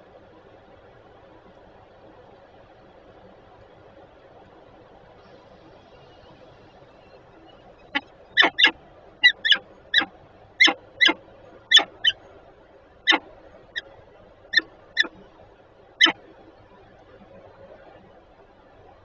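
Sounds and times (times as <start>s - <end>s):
falcon calling: 7.8s - 12.2s.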